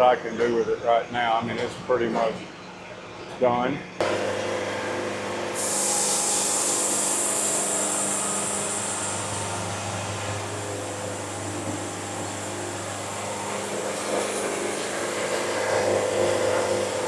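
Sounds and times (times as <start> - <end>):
band sawmill drone: 0.0 - 17.0
saw blade hissing through log: 5.5 - 17.0.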